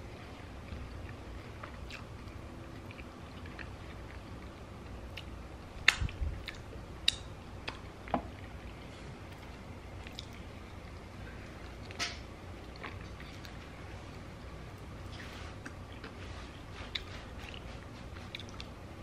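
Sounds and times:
person chewing: 0:00.6 - 0:12.0, 0:12.6 - 0:13.7, 0:14.7 - 0:18.8.

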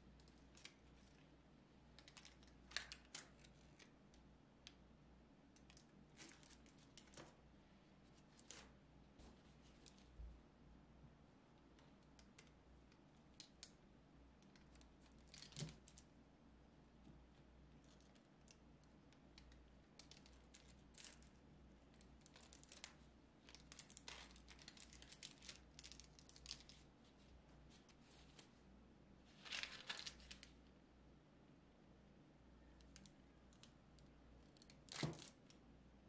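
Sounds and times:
parchment paper crinkling: 0:05.6 - 0:07.4, 0:20.0 - 0:28.5, 0:29.3 - 0:30.6.

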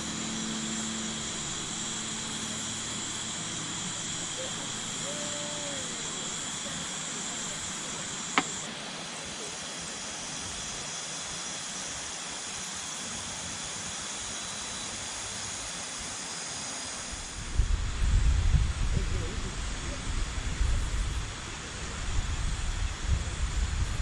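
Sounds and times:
insect chorus: 0:00.0 - 0:24.0
wind rumble on microphone: 0:17.2 - 0:24.0.

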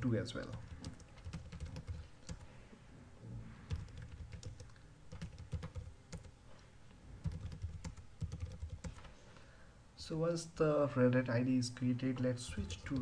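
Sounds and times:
typing on computer keyboard: 0:00.4 - 0:02.4, 0:03.7 - 0:06.3, 0:07.2 - 0:09.0.

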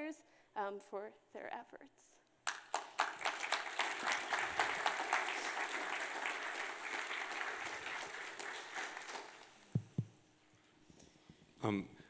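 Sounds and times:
audience applauding: 0:02.5 - 0:10.0
short dull thumps: 0:09.8 - 0:10.2.

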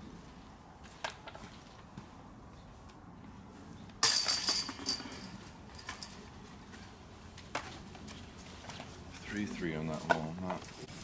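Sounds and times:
disc hitting basket chains: 0:04.0 - 0:06.7.

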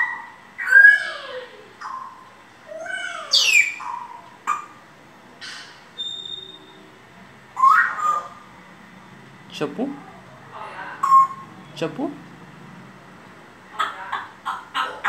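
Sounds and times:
parrot calling: 0:00.0 - 0:08.7, 0:10.0 - 0:11.9, 0:13.7 - 0:15.0
parrot whistle: 0:02.8 - 0:04.6, 0:05.4 - 0:06.8, 0:07.6 - 0:08.4.

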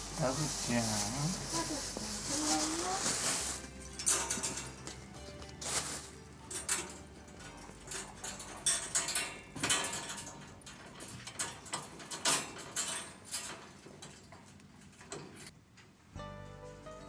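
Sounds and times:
fabric mat rustling: 0:00.0 - 0:06.3.

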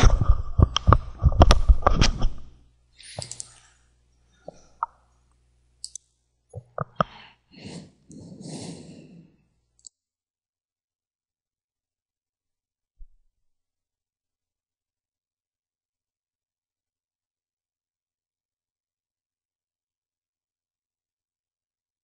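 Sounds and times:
breathing close to microphone: 0:06.9 - 0:09.6.

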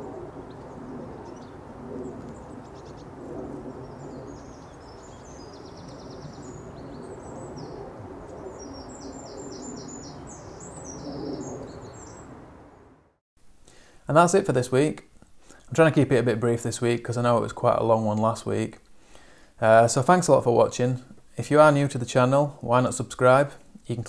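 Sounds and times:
small birds chirping: 0:00.4 - 0:12.4.

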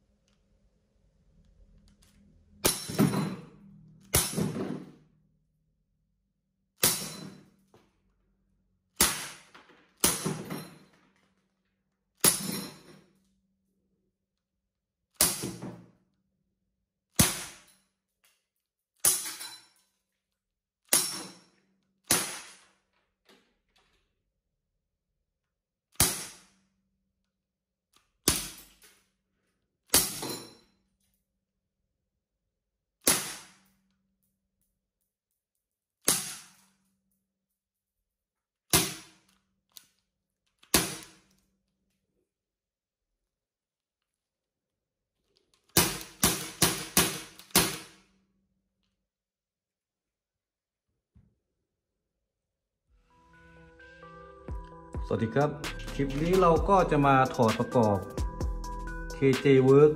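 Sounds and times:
airsoft pistol shots: 0:17.1 - 0:17.7, 0:22.1 - 0:22.7, 0:33.0 - 0:33.7.

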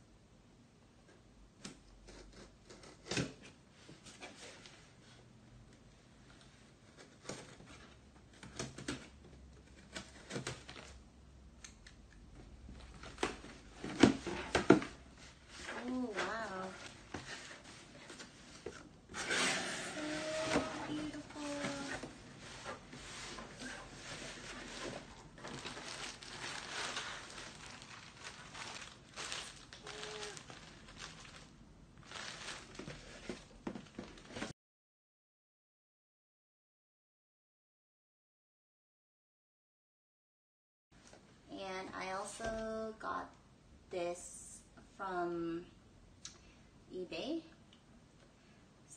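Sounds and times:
tape tearing and cardboard: 0:19.2 - 0:22.0
plastic packaging crinkling: 0:23.6 - 0:34.5.

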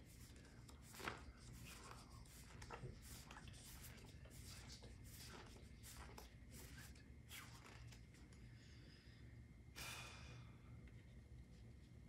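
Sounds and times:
paper banknotes rustling: 0:00.0 - 0:08.2
low room hum: 0:00.0 - 0:12.0.

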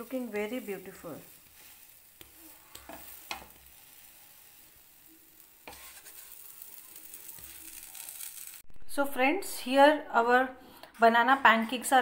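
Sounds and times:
batter sizzling in butter: 0:00.0 - 0:08.6
wooden spatula scraping pan: 0:05.6 - 0:06.6.

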